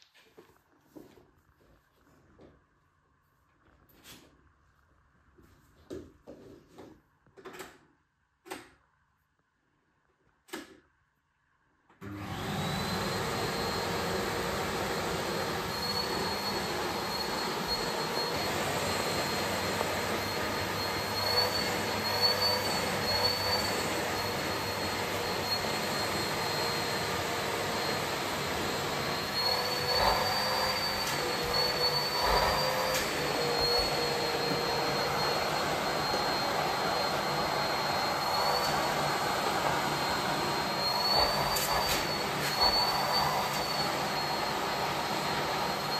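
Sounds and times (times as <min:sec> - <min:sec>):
vacuum cleaner whining: 0:11.9 - 0:45.9.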